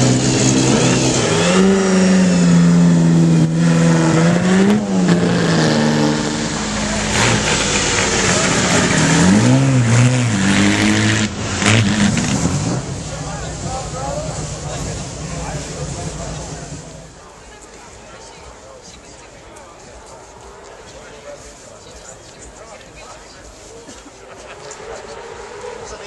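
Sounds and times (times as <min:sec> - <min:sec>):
racing car engine running: 0:00.0 - 0:17.3, 0:24.4 - 0:26.0.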